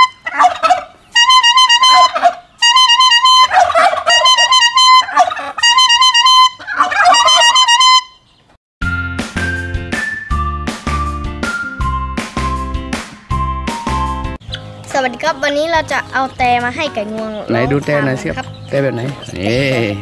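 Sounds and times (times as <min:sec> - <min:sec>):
turkeys gobbling: 0:00.0 - 0:08.4
plastic toy horn honking: 0:01.2 - 0:08.2
music jingle with heavy bass: 0:08.8 - 0:14.8.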